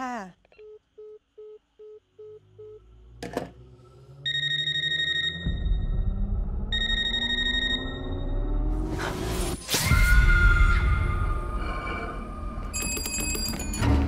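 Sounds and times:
low drone rising to rumble: 3.1s - 9.6s.

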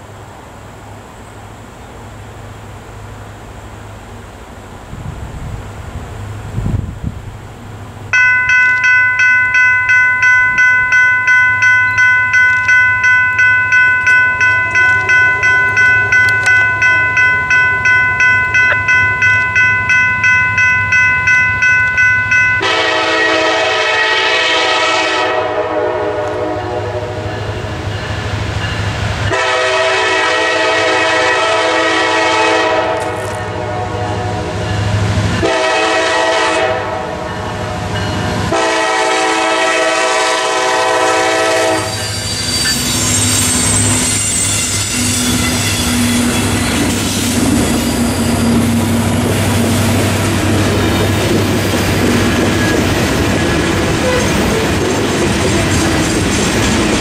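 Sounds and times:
electronic crossing bells ringing: 8.1s - 23.2s
locomotive air horn blasts: 22.6s - 27.4s, 29.3s - 34.5s, 35.4s - 37.3s, 38.5s - 42.2s, 54.0s - 54.7s.

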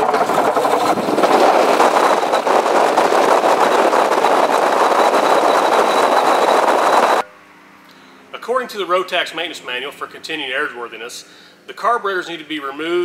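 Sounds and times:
aircraft engine running: 0.0s - 7.2s.

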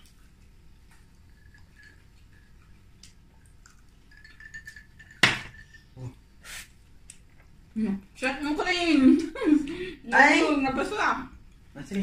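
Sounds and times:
glass set down on table: 5.2s - 5.6s.

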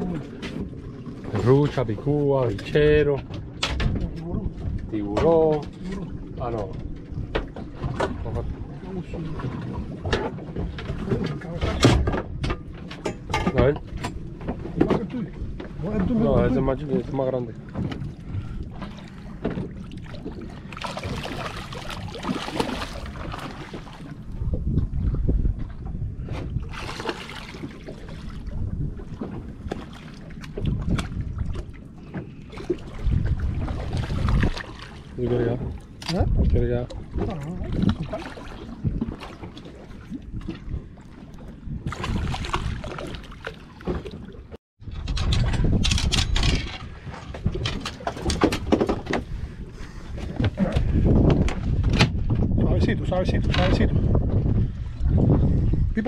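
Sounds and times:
low rumble: 0.0s - 39.4s
water splashing against boat: 0.0s - 56.0s
wind buffeting microphone: 0.0s - 56.0s
fish thrashing at surface: 20.8s - 24.0s.

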